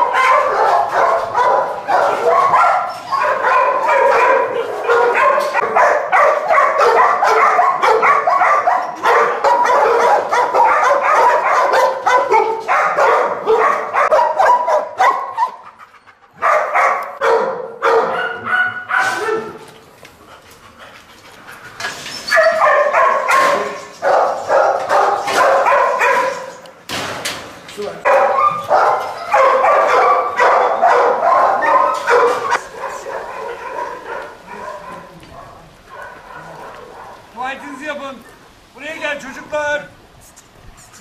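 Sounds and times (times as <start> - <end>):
dogs barking rapidly: 0.0 - 19.8, 21.6 - 26.6, 28.0 - 37.4.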